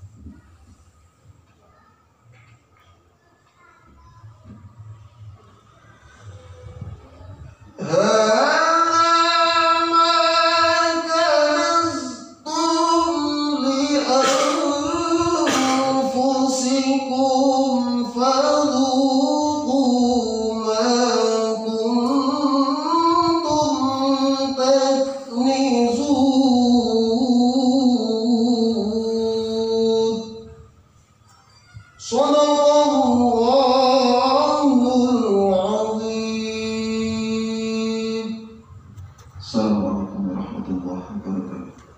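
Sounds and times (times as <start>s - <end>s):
man chanting melodically: 7.8s - 30.7s, 32.0s - 38.7s, 39.4s - 41.8s.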